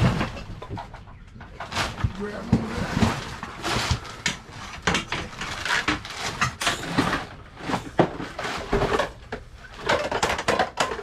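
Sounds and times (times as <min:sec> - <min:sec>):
plastic tarp rustling: 0:00.0 - 0:00.9, 0:01.5 - 0:10.3
plastic toys knocking and clattering: 0:00.0 - 0:11.0.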